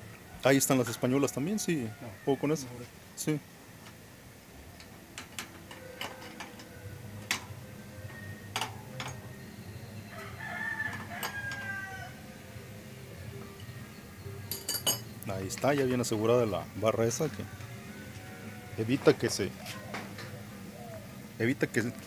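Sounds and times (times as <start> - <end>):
rooster crowing: 0.1 - 2.9, 5.8 - 14.0.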